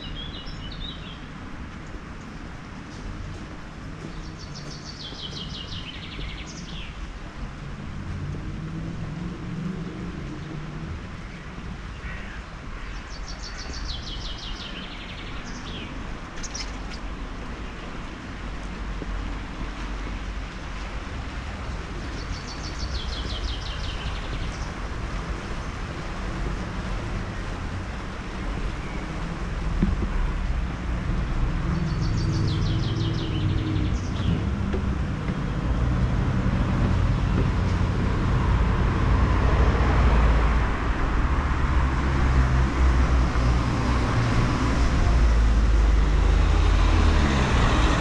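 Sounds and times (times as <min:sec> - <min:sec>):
low outdoor rumble: 0:17.0 - 0:48.0.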